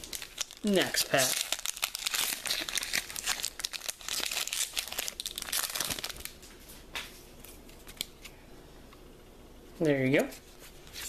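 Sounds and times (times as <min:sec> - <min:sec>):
foil wrapper crinkling and tearing: 0:00.0 - 0:06.5.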